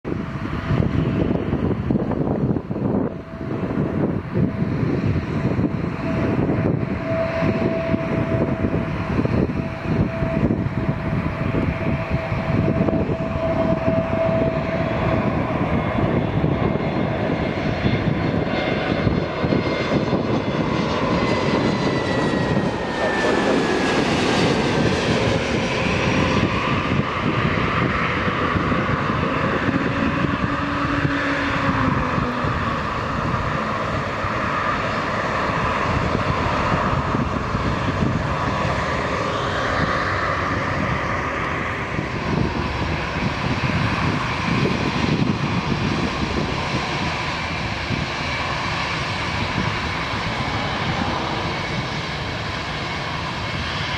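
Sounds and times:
jet engine roar: 0:00.0 - 0:53.9
jet engine whine falling in pitch: 0:00.1 - 0:53.9.

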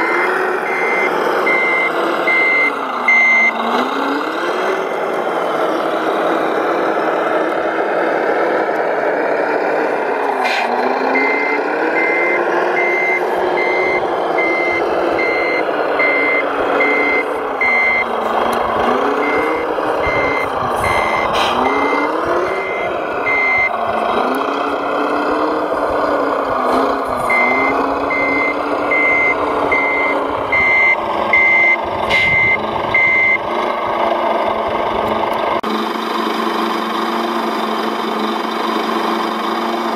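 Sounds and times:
reversing alarm beeping: 0:00.0 - 0:03.7, 0:11.1 - 0:18.2, 0:18.8 - 0:23.8, 0:27.2 - 0:33.5.

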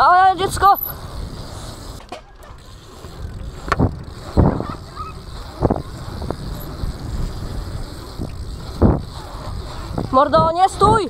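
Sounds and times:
tyres rolling on asphalt: 0:00.0 - 0:11.0
wind on microphone: 0:02.6 - 0:11.0
bike knocks and thumps: 0:03.6 - 0:04.9.

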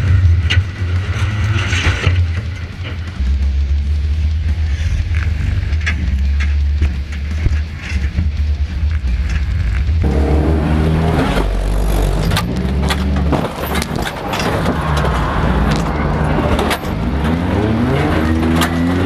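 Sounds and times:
metal bangs and clanks: 0:01.4 - 0:17.5
car engine revving hard: 0:10.0 - 0:19.0.

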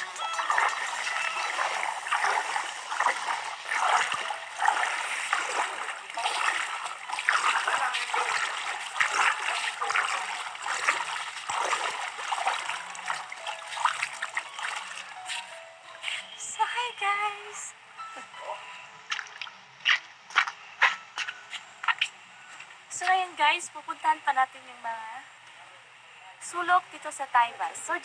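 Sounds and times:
water splashing around wading legs: 0:00.0 - 0:15.6, 0:19.1 - 0:22.2.

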